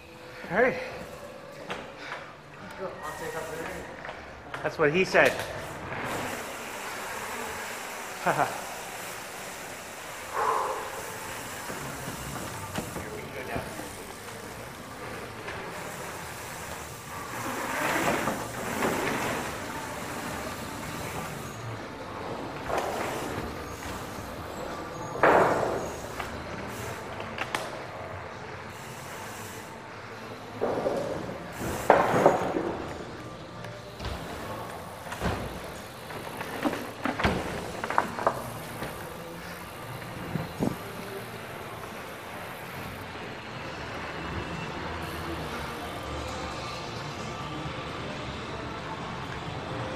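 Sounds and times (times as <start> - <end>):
bike tyres rolling on trail: 0.0 - 49.8
bike rattling and knocking: 10.2 - 21.7, 30.5 - 33.2, 33.8 - 41.9.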